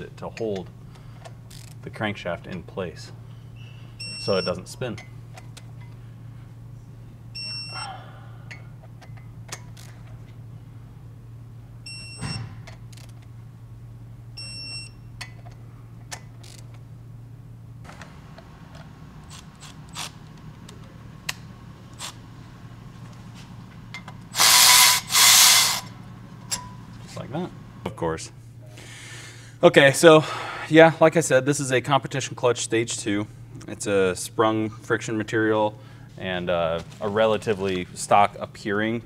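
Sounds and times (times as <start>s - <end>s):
cordless power ratchet spinning: 19.3s - 20.2s, 22.0s - 22.2s, 24.3s - 26.0s
tool clicks: 23.9s - 25.9s.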